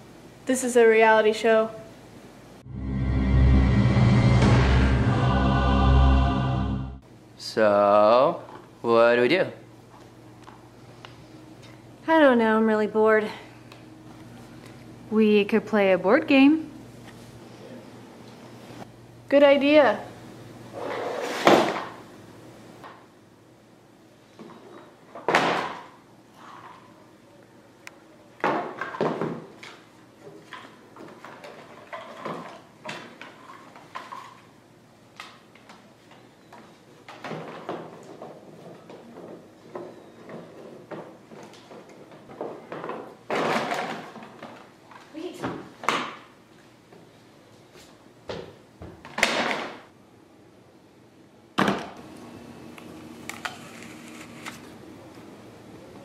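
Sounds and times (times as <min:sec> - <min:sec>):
low steady hum: 0:01.7 - 0:07.7.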